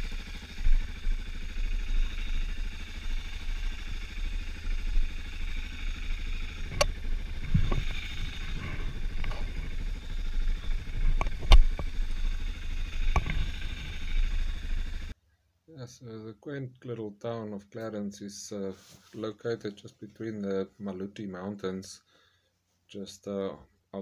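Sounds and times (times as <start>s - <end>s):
motorcycle engine idling: 0.0s - 15.2s.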